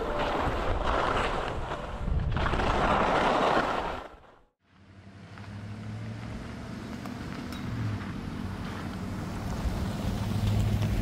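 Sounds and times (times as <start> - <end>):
skis scraping over snow: 0.0 - 4.4, 7.3 - 11.0
vehicle engine hum: 4.6 - 11.0.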